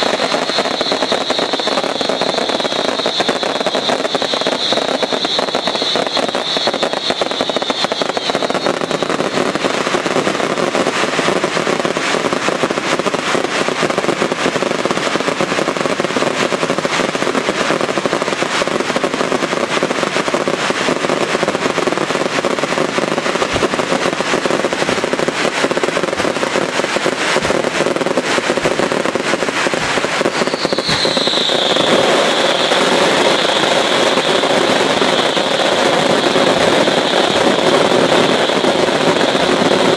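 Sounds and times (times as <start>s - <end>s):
fireworks bursting and crackling: 0.0s - 39.9s
high whistling tone: 0.2s - 9.3s, 30.3s - 34.2s.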